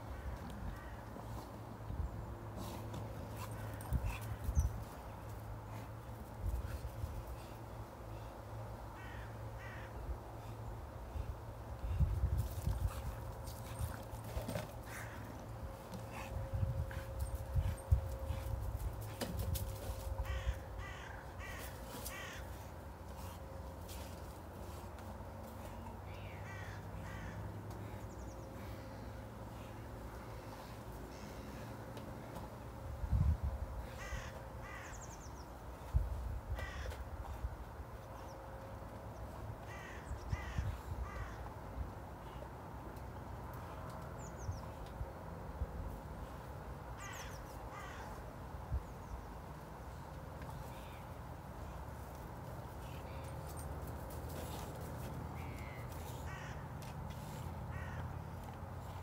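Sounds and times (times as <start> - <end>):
crow cawing: 9.0 - 10.0, 14.9 - 15.3, 20.2 - 22.6, 26.4 - 27.4, 33.9 - 35.0, 36.6 - 37.0, 39.7 - 41.4, 47.0 - 48.1, 55.6 - 56.6, 57.7 - 58.2.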